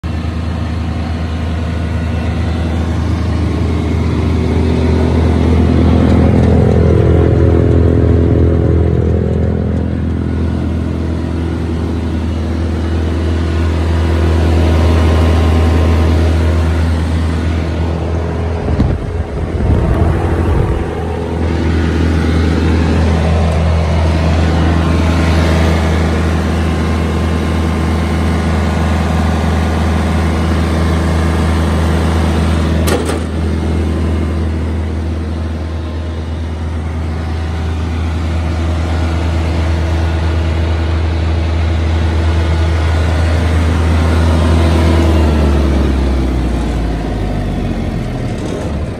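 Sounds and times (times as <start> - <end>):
diesel engine running: 0.0 - 48.9
wind buffeting microphone: 18.2 - 21.7.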